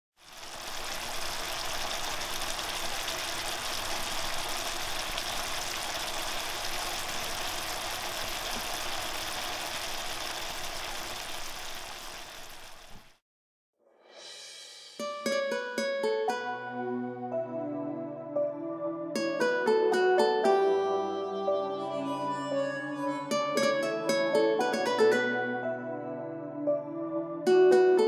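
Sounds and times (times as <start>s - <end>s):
gravy bubbling in a pan: 0.2s - 13.1s.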